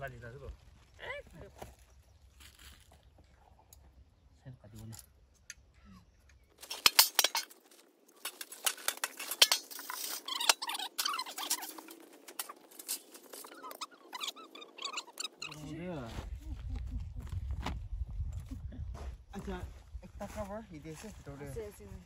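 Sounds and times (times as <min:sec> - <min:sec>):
camp gear clicking and rattling: 0:06.3 - 0:15.7.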